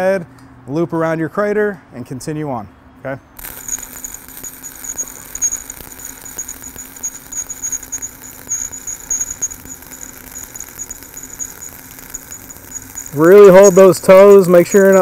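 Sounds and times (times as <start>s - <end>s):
welding arc crackling and popping: 3.4s - 15.0s.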